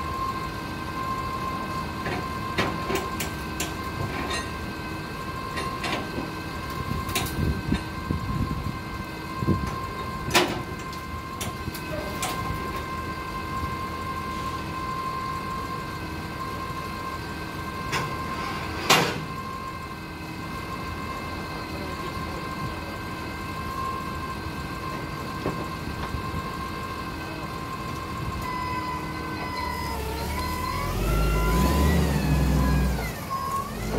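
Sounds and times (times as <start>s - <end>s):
forklift engine idling: 19.2s - 33.9s.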